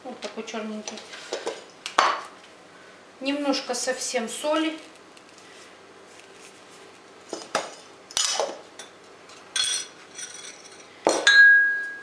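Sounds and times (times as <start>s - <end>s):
metal spoon clinking glass bowl: 9.6s - 12.0s
glass ringing: 11.1s - 12.0s.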